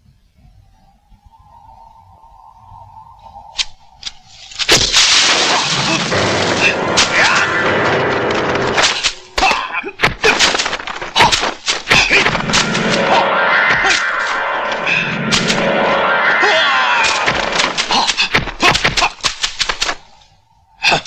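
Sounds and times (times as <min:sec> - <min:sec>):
loud dense soundtrack: 0:05.7 - 0:10.0, 0:12.1 - 0:18.6.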